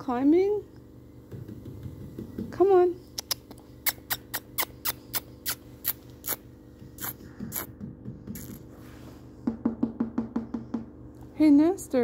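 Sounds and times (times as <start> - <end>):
person making kissing sounds: 3.2 - 8.7.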